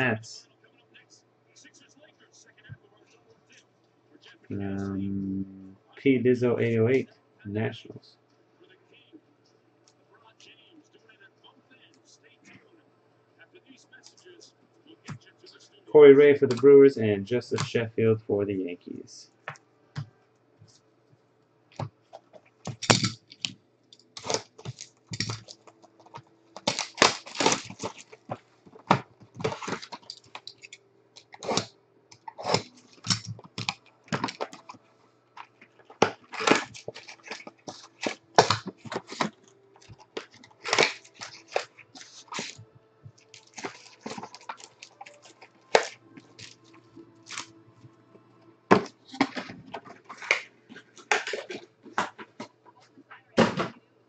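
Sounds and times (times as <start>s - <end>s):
wrapper and cardboard tearing: 24.2s - 34.8s, 35.5s - 47.6s.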